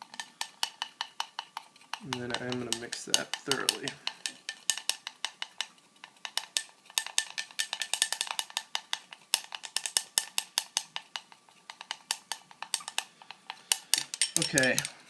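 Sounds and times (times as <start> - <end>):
stirrer clinking against glass: 2.0 - 5.6, 11.7 - 15.0.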